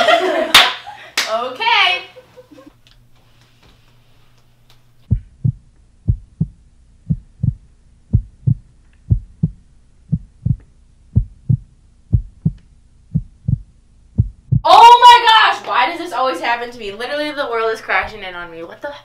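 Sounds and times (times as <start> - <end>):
heartbeat thumps: 5.0 - 14.7.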